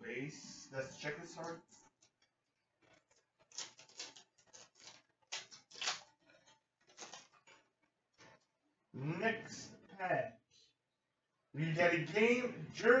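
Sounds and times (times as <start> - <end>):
trading cards rustling: 2.9 - 7.6.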